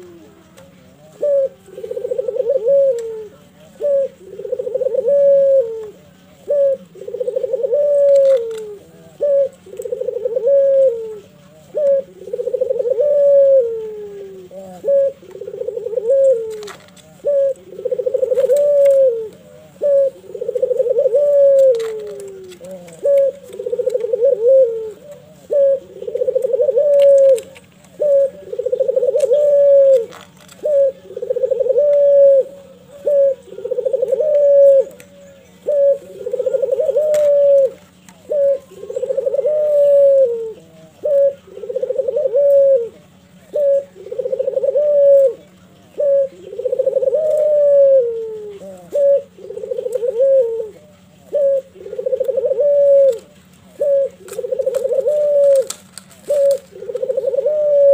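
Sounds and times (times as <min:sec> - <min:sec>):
dove cooing: 0:00.0 - 0:57.9.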